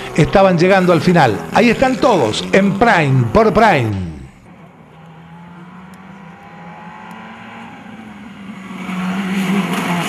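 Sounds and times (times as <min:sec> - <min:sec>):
rally car engine approaching: 0:00.0 - 0:10.0.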